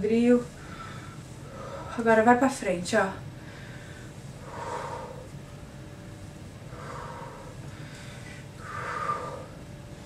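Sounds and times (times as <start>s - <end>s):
woman breathing out heavily: 0.6s - 2.0s, 3.4s - 5.4s, 6.7s - 9.7s.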